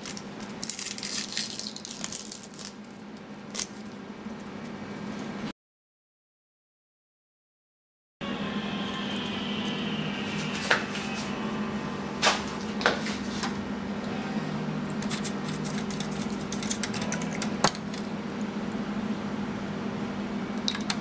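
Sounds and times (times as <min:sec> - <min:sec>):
steady low hum: 0:08.2 - 0:21.0
plastic stick stirring in plastic cup: 0:15.0 - 0:18.0.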